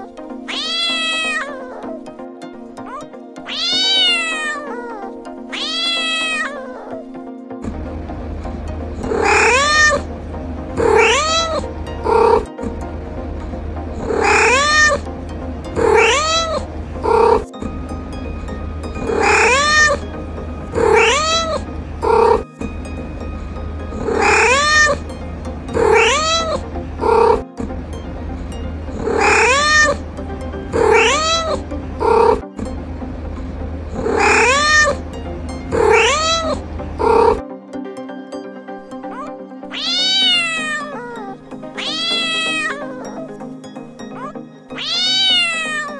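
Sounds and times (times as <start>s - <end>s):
cat meowing: 0.5s - 2.0s, 2.8s - 7.0s, 9.2s - 10.1s, 10.8s - 12.4s, 14.2s - 15.0s, 15.8s - 17.4s, 19.2s - 20.0s, 20.8s - 22.4s, 24.1s - 25.0s, 25.8s - 27.4s, 29.2s - 30.0s, 30.8s - 32.4s, 34.0s - 35.0s, 35.8s - 37.4s, 39.1s - 43.3s, 44.2s - 45.9s
steady low hum: 7.7s - 16.0s, 31.6s - 34.2s
cat meowing loudly: 20.9s - 21.6s, 30.9s - 31.6s, 35.9s - 36.6s, 41.8s - 43.1s, 44.2s - 45.9s.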